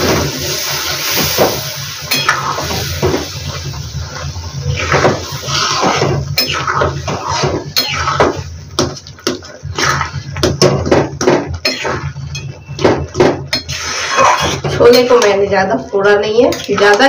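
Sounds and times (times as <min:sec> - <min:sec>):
metal spoon scraping a pan: 0:04.8 - 0:08.4, 0:13.5 - 0:15.3, 0:16.5 - 0:17.0.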